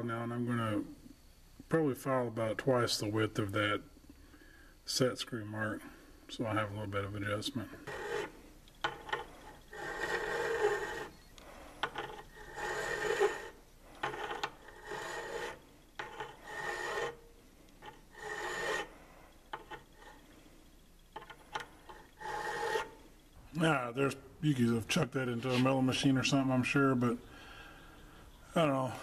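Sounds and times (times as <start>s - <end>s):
file rasping on steel: 7.8s - 11.2s, 11.8s - 19.0s, 21.8s - 23.0s.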